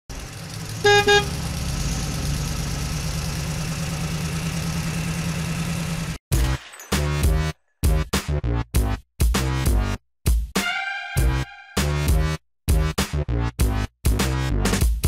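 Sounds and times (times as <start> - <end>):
truck engine idling: 0.1 - 6.2
truck horn honks: 0.7 - 1.5.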